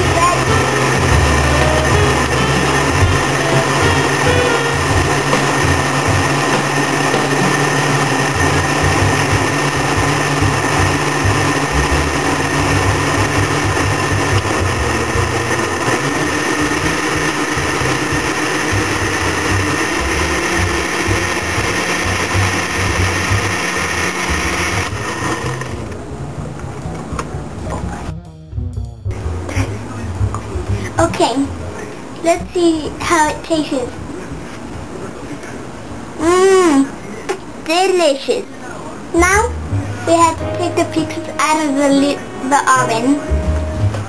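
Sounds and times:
blender motor running: 0.0 - 25.9.

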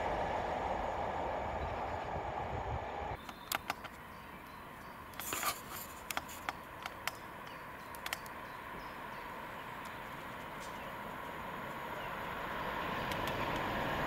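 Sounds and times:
distant diesel locomotive hum: 0.0 - 14.0
sharp clicks: 3.2 - 4.0, 6.0 - 8.4, 13.0 - 13.7
rustling scrape: 5.2 - 6.4.

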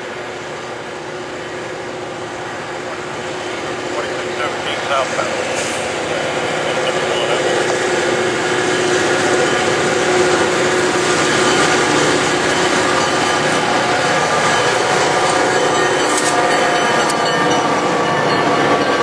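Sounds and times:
diesel locomotive engine drone: 0.0 - 19.0.

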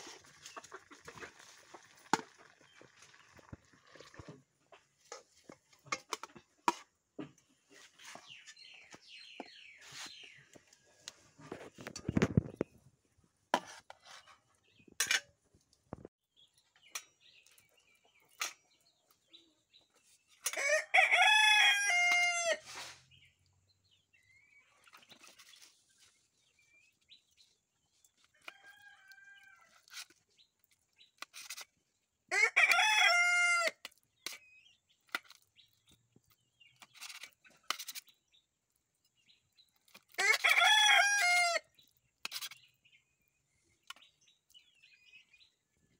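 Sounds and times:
rooster crowing: 20.6 - 22.6, 40.2 - 41.6.

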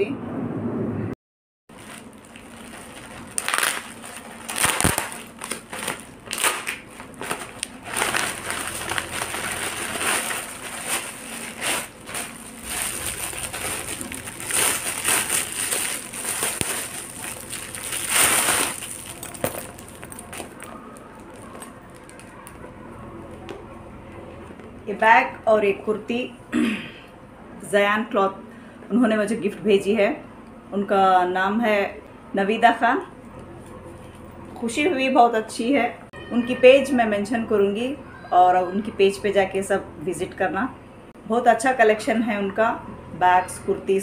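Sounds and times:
plastic packaging crinkling: 1.7 - 22.7.

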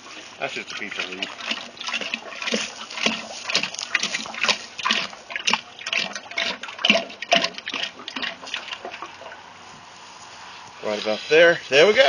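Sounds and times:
oil splashing: 0.0 - 9.6.

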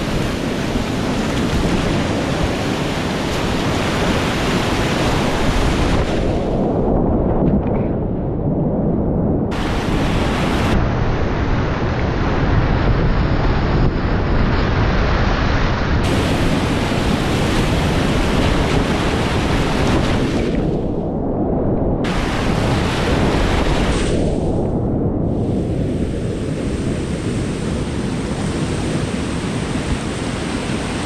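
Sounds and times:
wind noise on microphone: 0.0 - 31.0
whitewater rapids rushing: 9.5 - 10.8, 16.0 - 20.6, 22.1 - 24.1.

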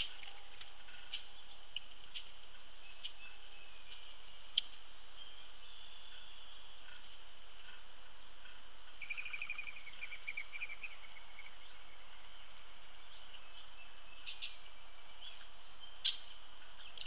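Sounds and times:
bird trilling: 9.0 - 11.6.

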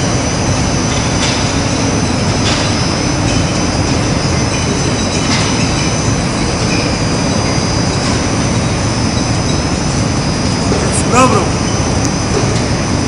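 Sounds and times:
high machine whines: 0.0 - 13.0
industrial machinery running: 0.0 - 13.0.

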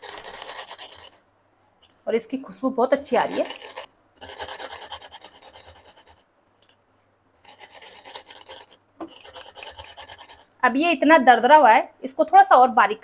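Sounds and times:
rolling pin crushing seeds: 0.0 - 1.2, 2.9 - 6.2.

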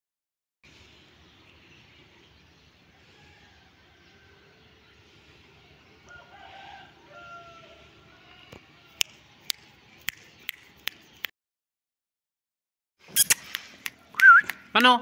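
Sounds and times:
faint short chirps: 13.1 - 13.6
sharp clicks: 13.2 - 14.9.

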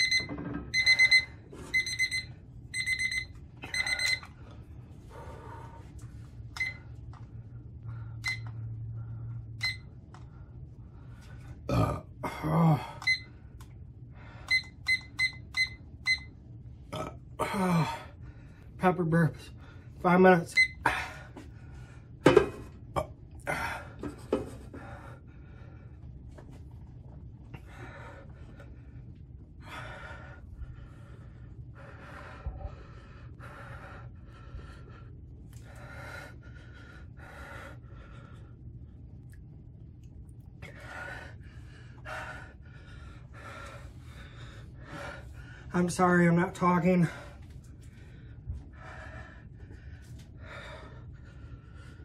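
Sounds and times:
man breathing heavily: 3.6 - 9.6, 10.2 - 14.7, 17.4 - 18.8, 20.8 - 22.2, 23.4 - 39.2, 40.6 - 46.2, 46.9 - 52.0.

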